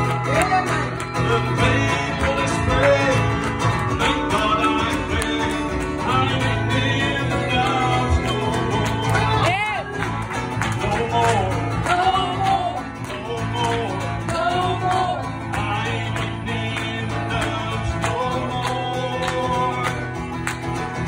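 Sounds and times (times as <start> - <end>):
man singing: 0.0 - 20.2
strummed acoustic guitar: 0.0 - 21.0.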